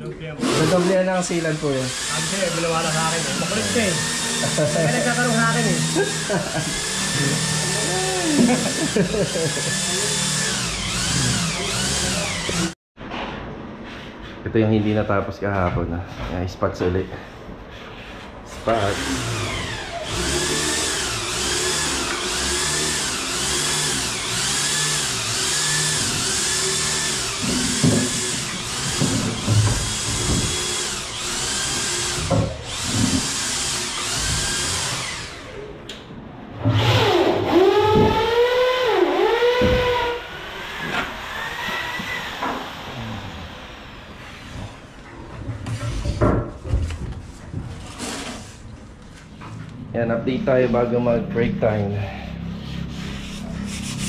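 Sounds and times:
electric power tool running: 0:00.4 - 0:12.8, 0:18.7 - 0:35.6, 0:36.7 - 0:44.8.

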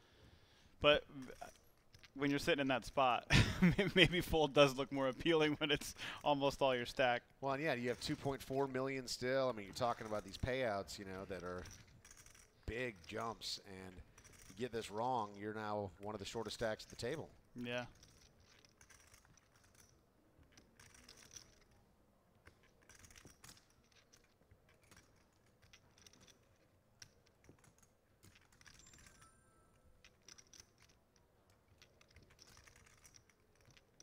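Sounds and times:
poker chips clicking: 0:22.4 - 0:34.0.

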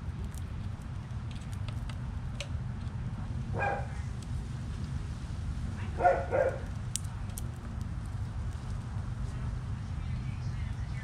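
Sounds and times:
dog barking: 0:03.5 - 0:04.0, 0:05.9 - 0:06.7.

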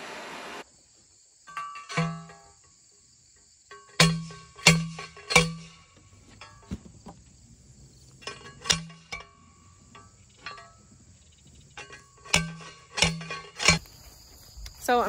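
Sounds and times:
crickets chirring: 0:00.6 - 0:15.0
metal post pounder clanking: 0:01.5 - 0:02.7, 0:03.7 - 0:07.0, 0:08.1 - 0:13.8.

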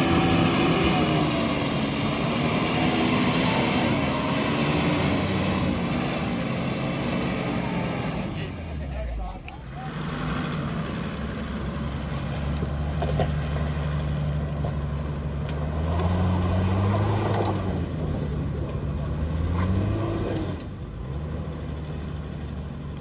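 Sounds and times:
engine pulling uphill: 0:00.0 - 0:23.0.

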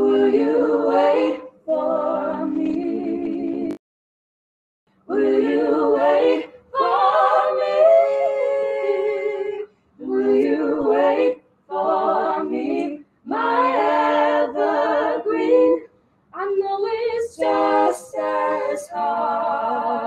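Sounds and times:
a cappella group singing in harmony: 0:00.0 - 0:03.8, 0:05.0 - 0:20.0.

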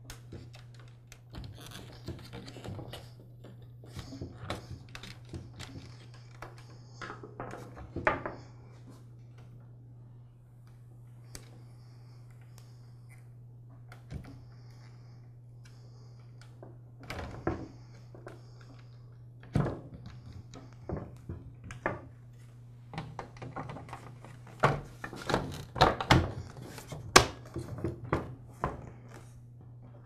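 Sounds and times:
hands working wires clicking: 0:00.0 - 0:08.2
faint low hum: 0:00.0 - 0:30.0.

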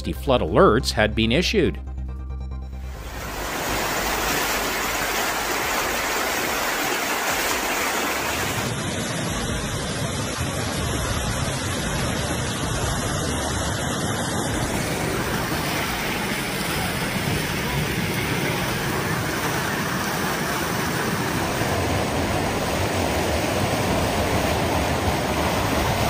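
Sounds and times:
floodwater rushing: 0:02.8 - 0:26.0.

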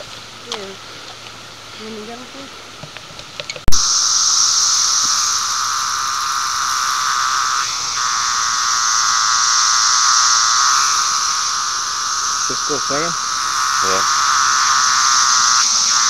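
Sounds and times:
cicada buzzing loudly: 0:03.7 - 0:16.0.

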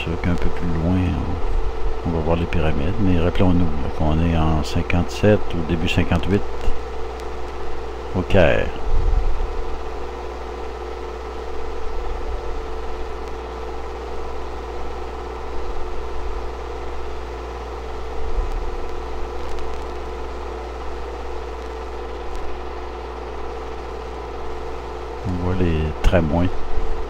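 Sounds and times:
mechanical hum: 0:00.0 - 0:27.0.

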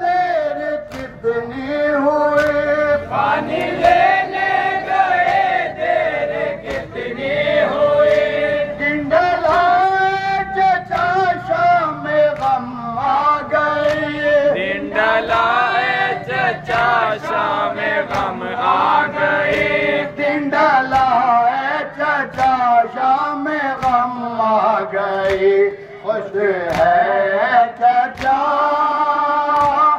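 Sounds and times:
men chanting in unison: 0:00.0 - 0:29.9
hand slaps on chest: 0:00.9 - 0:01.2, 0:02.3 - 0:02.6, 0:22.3 - 0:22.6, 0:23.7 - 0:24.1, 0:25.2 - 0:25.5, 0:26.7 - 0:27.0, 0:28.1 - 0:28.4, 0:29.6 - 0:29.8.

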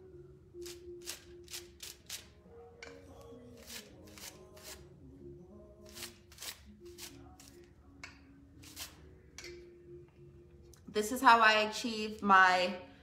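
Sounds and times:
faint background music: 0:00.0 - 0:13.0
brush scratching on hair: 0:03.2 - 0:04.9, 0:08.6 - 0:09.0.

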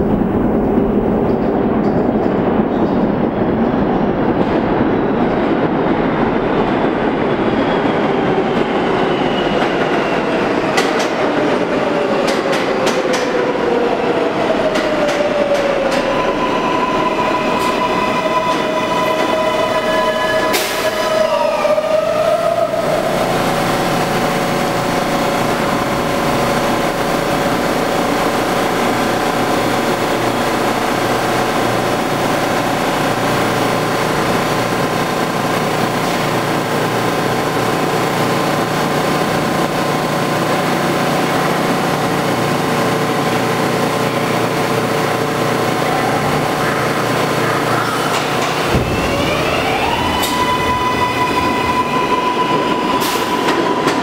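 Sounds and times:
steady train hum: 0:00.0 - 0:54.0
train wheels rumbling on rails: 0:00.0 - 0:54.0
whining tones falling in pitch: 0:14.4 - 0:23.5, 0:48.7 - 0:54.0.

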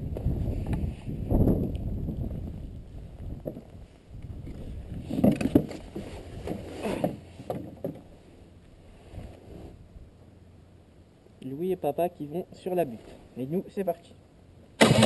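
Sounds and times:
wind rumble on microphone: 0:00.0 - 0:06.7
knocks and rustles: 0:04.4 - 0:08.2.

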